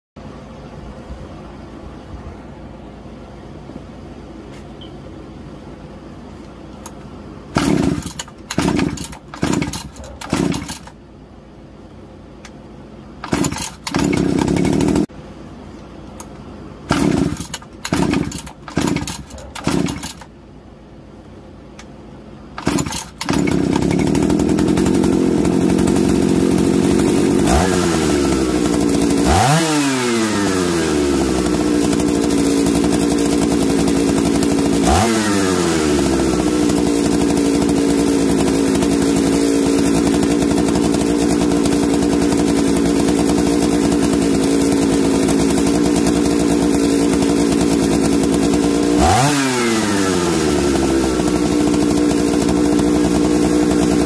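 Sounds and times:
chainsaw starting and revving: 7.5s - 11.0s, 13.2s - 15.1s, 16.9s - 20.3s, 22.6s - 54.0s.

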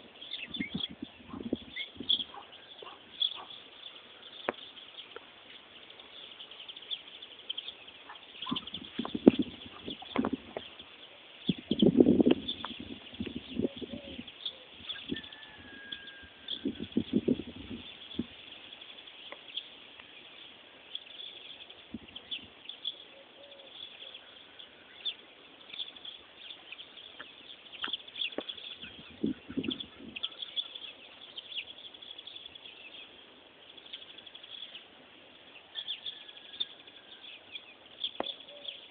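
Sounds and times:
small birds chirping: 0.0s - 38.9s
pigeon cooing: 13.6s - 14.7s, 23.1s - 24.2s.

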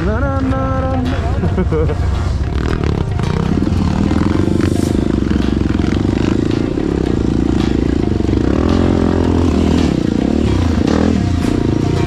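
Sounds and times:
dirt bike engine revving: 2.1s - 12.0s.

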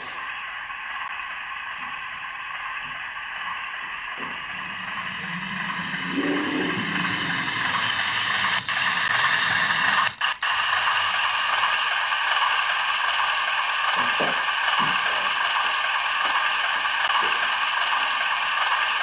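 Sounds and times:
model train motor whirring: 0.0s - 19.0s.

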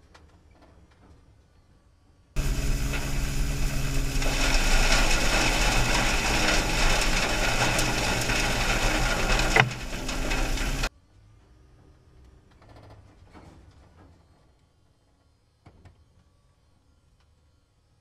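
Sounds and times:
low hum: 2.4s - 10.9s.

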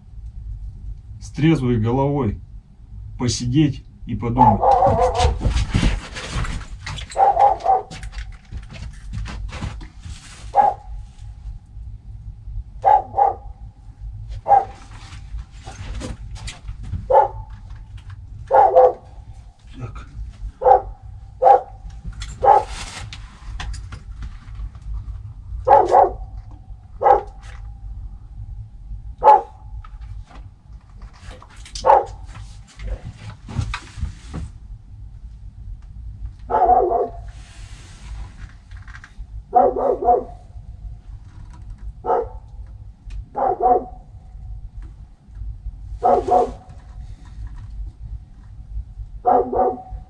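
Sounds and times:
steady low hum: 0.0s - 50.0s
dog barking: 4.4s - 5.4s, 7.1s - 8.0s, 10.5s - 11.0s, 12.8s - 13.6s, 14.4s - 14.8s, 17.1s - 17.6s, 18.5s - 19.2s, 20.6s - 21.8s, 22.4s - 22.8s, 25.6s - 26.3s, 27.0s - 27.4s, 29.2s - 29.6s, 31.8s - 32.3s, 36.5s - 37.3s, 39.5s - 40.5s, 42.0s - 42.4s, 43.3s - 44.1s, 46.0s - 46.7s, 49.2s - 50.0s.

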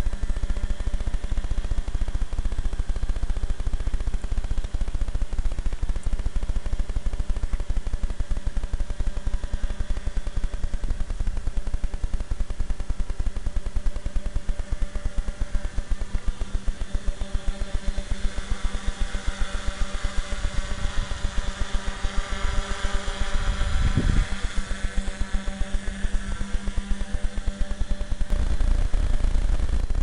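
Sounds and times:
drone motors whining: 7.6s - 30.0s
wind buffeting microphone: 23.4s - 24.4s.

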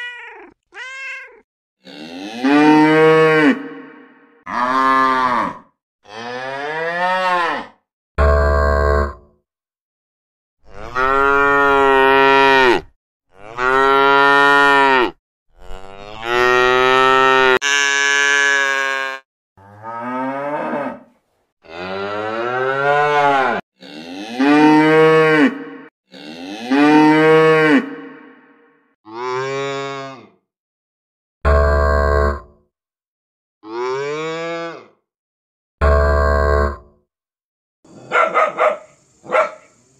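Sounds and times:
cattle mooing: 1.8s - 7.7s, 10.7s - 28.4s.

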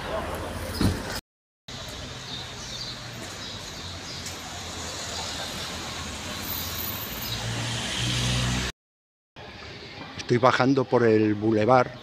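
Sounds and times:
road noise: 0.0s - 8.8s
street traffic engines: 0.0s - 8.8s.

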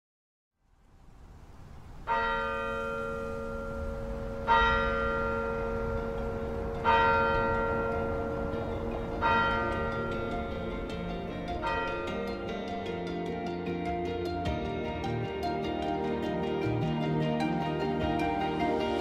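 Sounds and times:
large bell tolling: 2.1s - 13.0s.

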